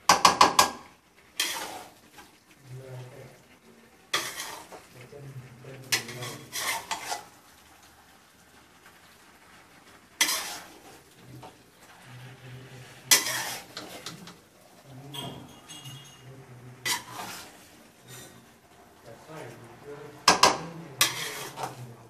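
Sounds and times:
metal spoon scraping a pan: 1.3 - 2.4, 4.1 - 7.4, 10.2 - 22.0.

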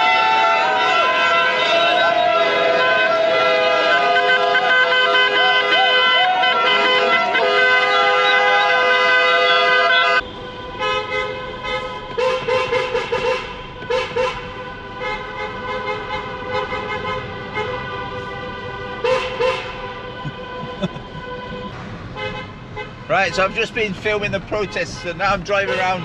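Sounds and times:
held car horn: 0.0 - 26.0
quick repeated horn toots: 15.9 - 22.5.

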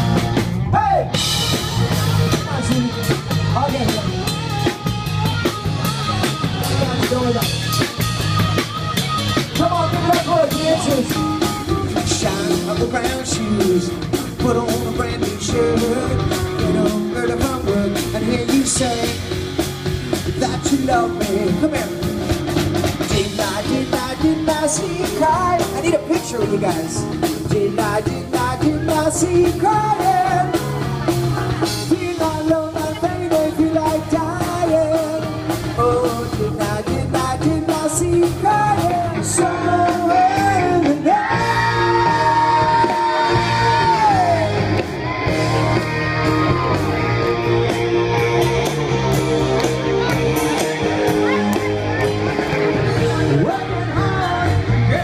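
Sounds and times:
bass guitar: 0.0 - 55.0
drum kit: 0.0 - 55.0
electric guitar: 0.0 - 55.0
person singing: 9.5 - 19.4, 20.2 - 22.2, 23.0 - 55.0.

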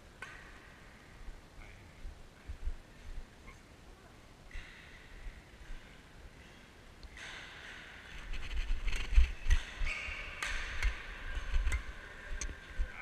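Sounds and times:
camera rustling and knocking: 8.2 - 9.6.

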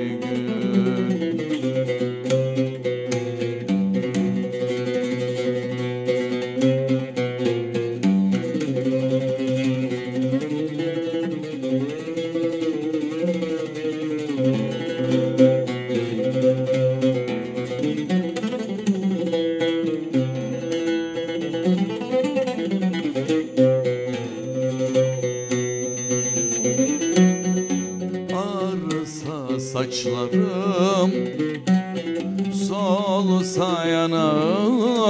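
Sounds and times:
oud plucked melody: 0.0 - 35.0.

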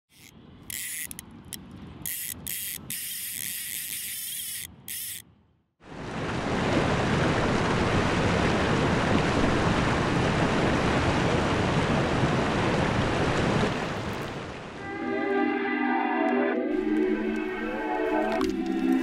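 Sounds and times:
river water rushing: 16.7 - 19.0.

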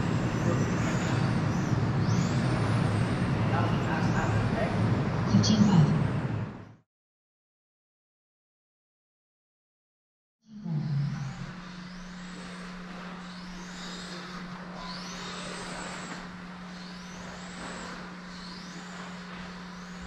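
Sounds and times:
steady low hum: 0.0 - 6.8, 10.5 - 20.0
electric motor whine: 10.6 - 20.0.

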